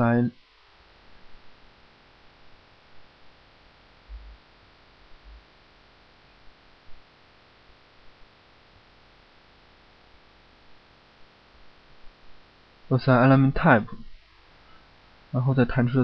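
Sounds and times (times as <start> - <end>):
steady hiss and electrical hum: 0.0 - 16.0
soft low thumps: 4.0 - 5.6.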